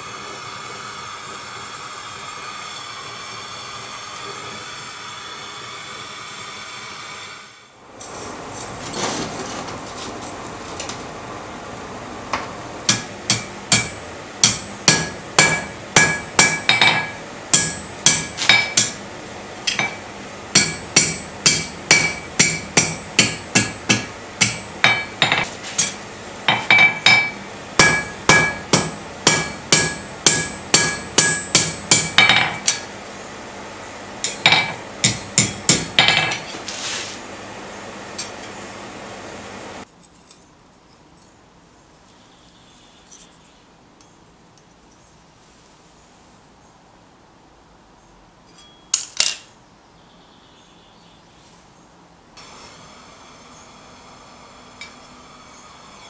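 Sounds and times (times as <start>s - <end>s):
hammer on hot steel: 12.9s - 19.0s, 19.7s - 32.9s, 34.2s - 36.5s
anvil ringing: 26.5s - 32.8s.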